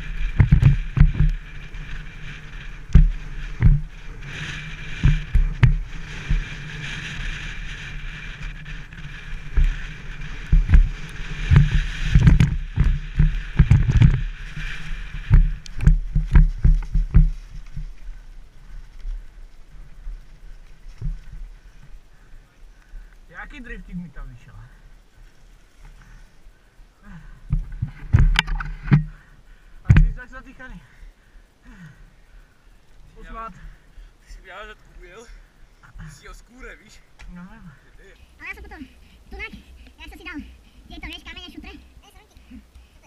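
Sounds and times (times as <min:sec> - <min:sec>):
bike knocks and rattles: 0:00.0 - 0:07.8, 0:08.8 - 0:18.0, 0:27.6 - 0:30.2
wind rushing over microphone: 0:00.0 - 0:22.2, 0:27.4 - 0:29.2, 0:29.8 - 0:30.6.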